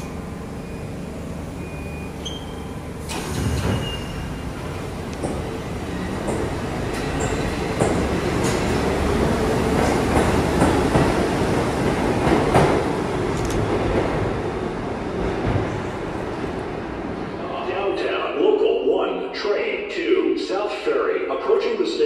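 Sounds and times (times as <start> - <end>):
subway train rumble: 0.0 - 22.0.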